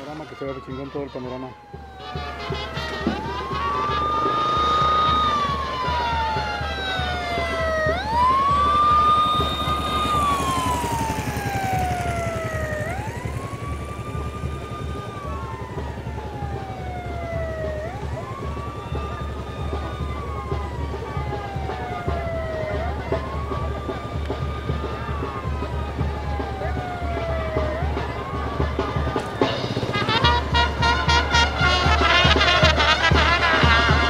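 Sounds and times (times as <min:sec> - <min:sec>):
siren wailing: 0:00.0 - 0:34.0.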